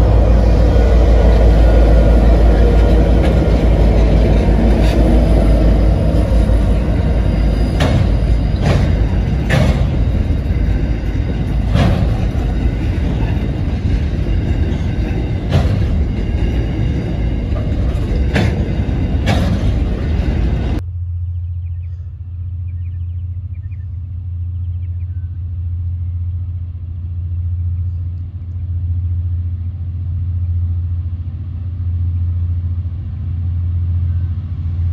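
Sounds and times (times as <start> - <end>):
diesel locomotive engine rumble: 0.0 - 34.9
wagon wheels on rails: 1.0 - 20.8.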